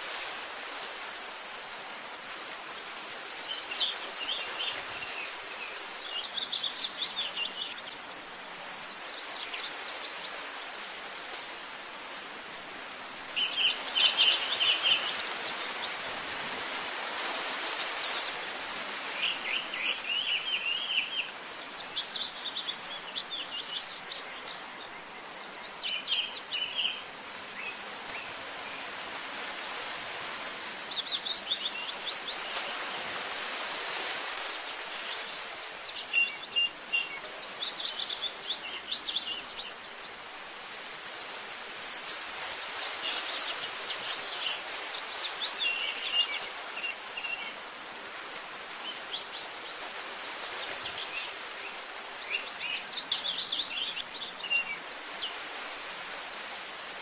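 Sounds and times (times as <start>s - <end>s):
small birds chirping: 1.8s - 10.4s, 13.2s - 16.1s, 16.7s - 28.9s, 34.4s - 47.7s, 48.8s - 55.4s.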